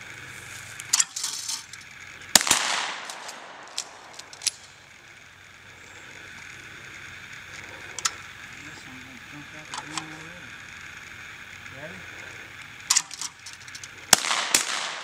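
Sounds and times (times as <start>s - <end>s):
shotgun shot with echo: 2.4s - 3.7s, 14.1s - 15.0s
shotgun pump clicks: 2.4s - 4.7s.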